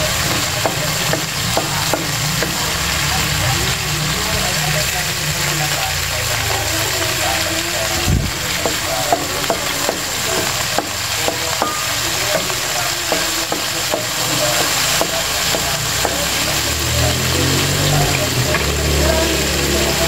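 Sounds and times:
garlic sizzling in sauce: 0.0 - 20.0.

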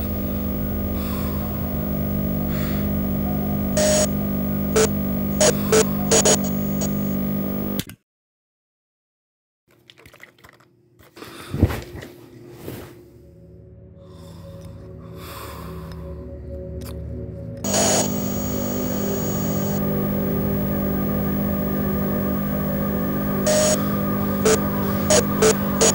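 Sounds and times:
static crackles: 0.0 - 7.8, 17.6 - 25.9
television static hiss and hum: 0.0 - 7.8, 17.6 - 25.9.

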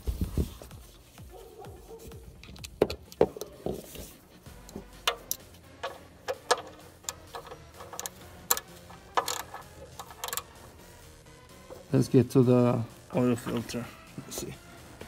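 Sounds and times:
socket ratchet clicking: 2.4 - 3.6, 4.6 - 10.7.

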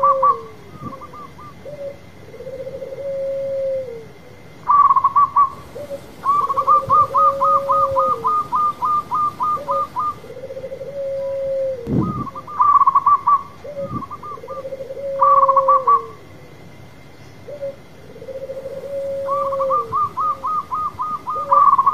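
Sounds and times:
dove cooing: 0.0 - 16.3, 17.4 - 21.9
higher hooked bird notes: 4.7 - 10.5.

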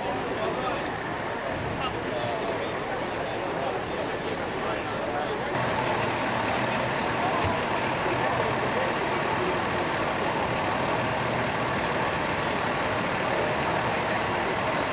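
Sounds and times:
diesel engine idling: 5.5 - 14.9.

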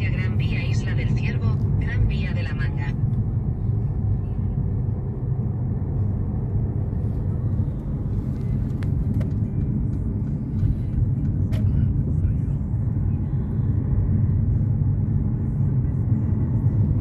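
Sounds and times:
car engine and tyre rumble: 0.0 - 17.0.

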